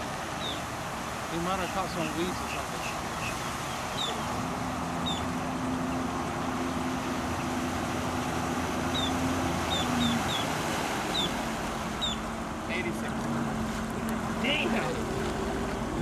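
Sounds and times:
jet ski engine running: 0.0s - 16.0s
birds chirping: 0.2s - 16.0s.

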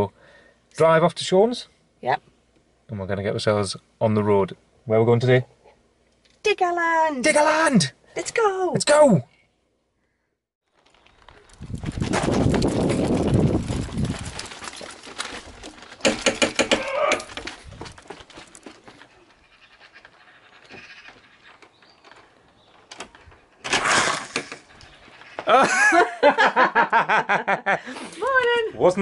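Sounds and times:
people laughing: 25.5s - 27.9s.

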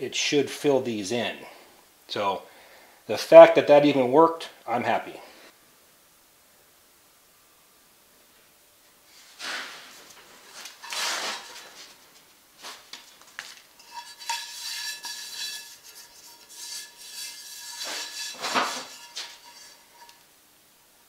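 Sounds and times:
hand brushing over a skillet: 9.1s - 12.0s, 12.6s - 20.2s
steady metallic ring: 13.8s - 20.2s.

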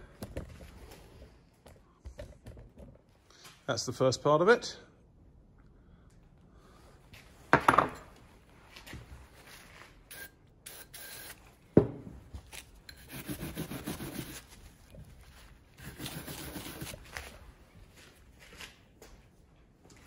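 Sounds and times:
parts knocking on bench: 7.5s - 8.0s
wire brush scrubbing metal: 12.9s - 14.5s, 15.8s - 17.0s.

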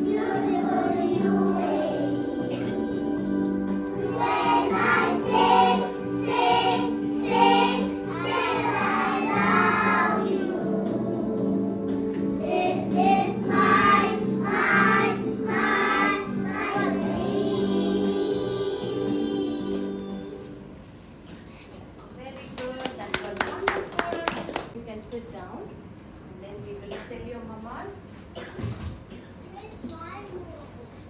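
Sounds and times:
children singing together: 0.0s - 20.5s.

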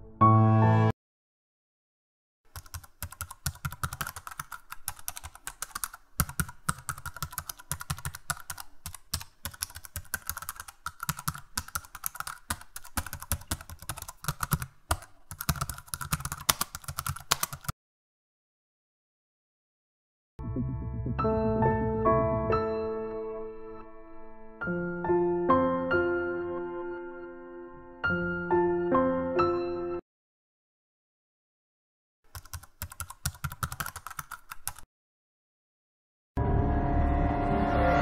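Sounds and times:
keyboard typing clicks: 2.5s - 17.7s, 32.3s - 34.9s.

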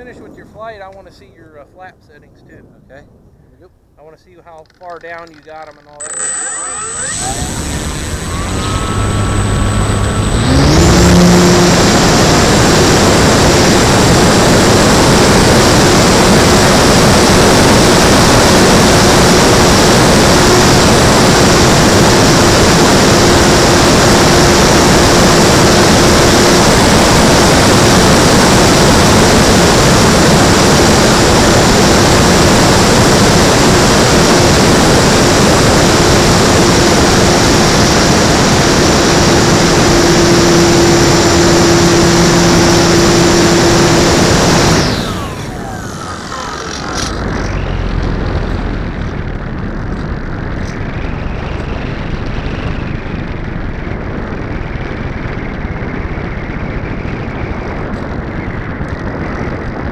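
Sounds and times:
electric motor whine: 6.0s - 49.4s
rushing airflow: 7.1s - 55.0s.

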